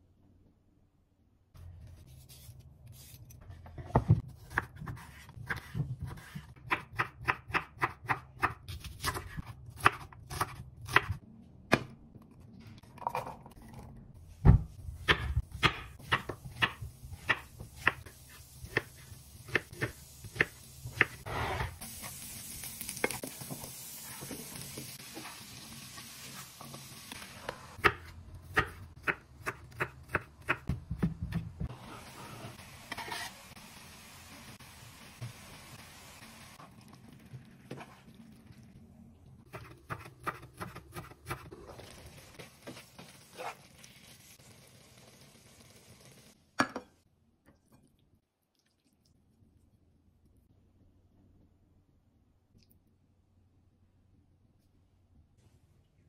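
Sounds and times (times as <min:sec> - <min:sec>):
knife chopping on wooden board: 0:39.5 - 0:41.4.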